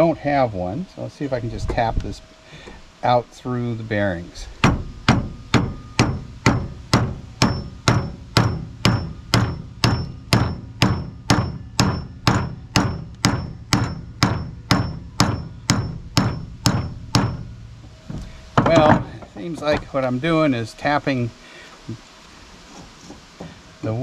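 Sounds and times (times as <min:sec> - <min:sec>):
hammer tapping on metal shaft: 0:04.6 - 0:17.5.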